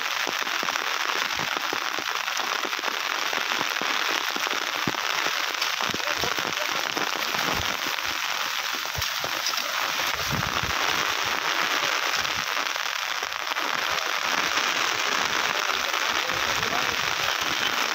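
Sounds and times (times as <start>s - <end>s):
rain: 0.0s - 17.9s
river rushing: 5.6s - 12.3s.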